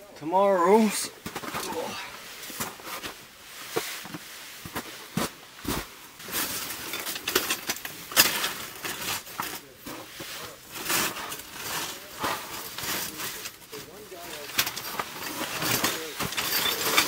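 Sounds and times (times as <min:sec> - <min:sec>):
metal cot frame clattering: 0:10.7 - 0:17.0.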